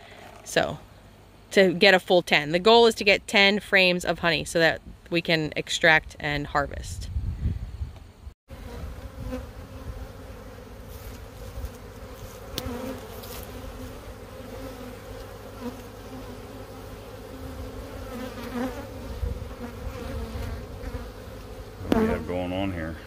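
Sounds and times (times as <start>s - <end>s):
bees buzzing: 8.5s - 23.0s
single bees passing close: 8.5s - 23.0s.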